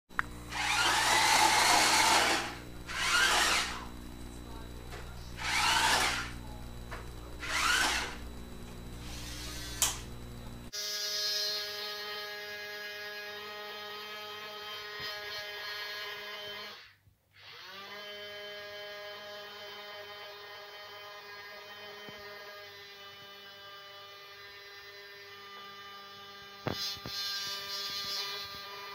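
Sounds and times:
steady electric hum: 0.1s - 16.8s
small electric motor whirring: 0.2s - 28.9s.

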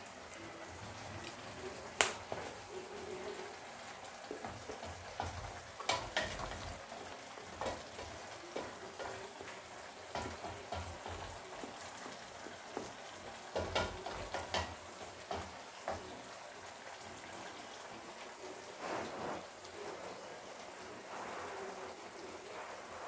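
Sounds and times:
stew bubbling in a wok: 0.0s - 23.0s
wooden spatula knocking on wok: 4.4s - 6.8s, 7.4s - 16.1s.

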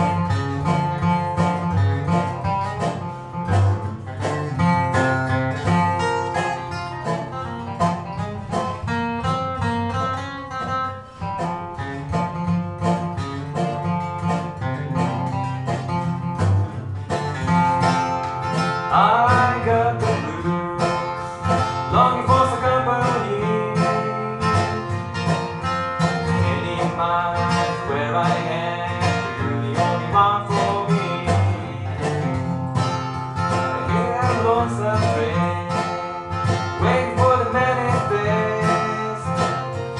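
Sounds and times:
acoustic guitar picking and strumming: 0.0s - 39.9s
dobro sliding notes: 0.0s - 39.9s.

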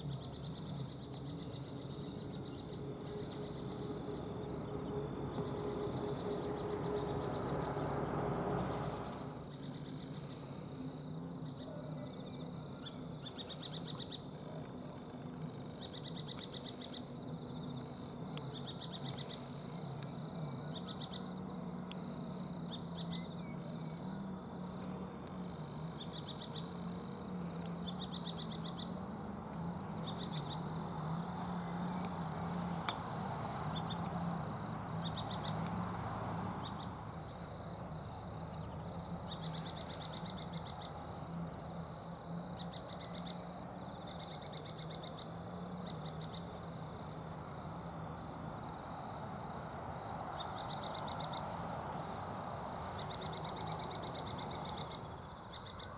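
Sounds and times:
low hum: 0.0s - 11.6s
birds calling with rapid trills: 0.0s - 14.6s, 15.7s - 51.7s, 52.8s - 55.9s.

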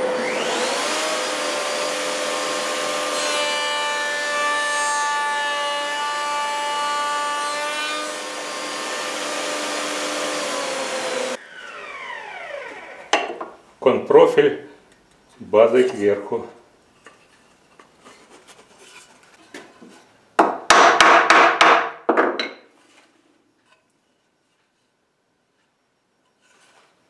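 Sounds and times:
router motor whining: 0.0s - 3.1s, 8.0s - 13.1s
router bit cutting wood: 0.0s - 13.2s.

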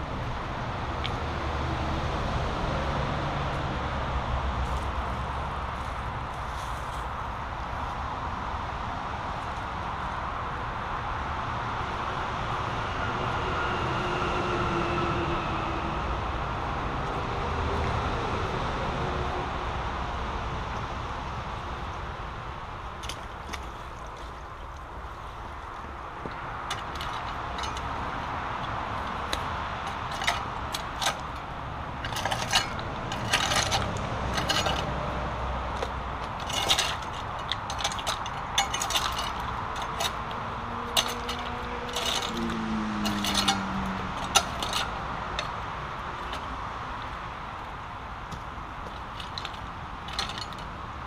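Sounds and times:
rake scraping through stones: 29.3s - 35.2s, 35.8s - 45.6s.

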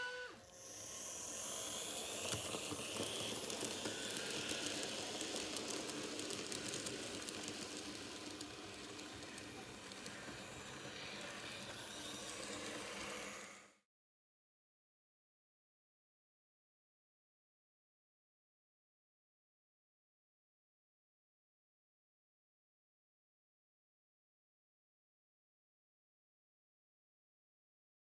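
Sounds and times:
wheels clicking on rail joints: 0.0s - 13.6s
model train hissing: 0.0s - 13.8s.

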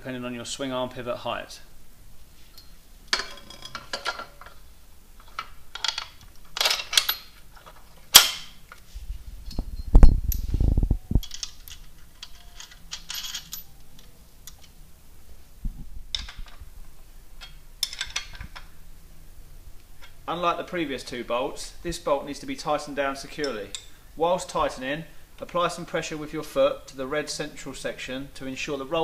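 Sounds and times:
metallic clicks and clinks: 5.2s - 8.5s, 11.2s - 14.8s.

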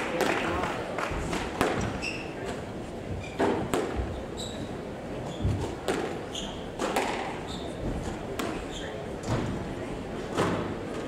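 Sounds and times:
squash ball striking racquets and walls: 0.0s - 9.6s
shoes squeaking on wooden floor: 3.1s - 6.8s, 7.4s - 8.1s.

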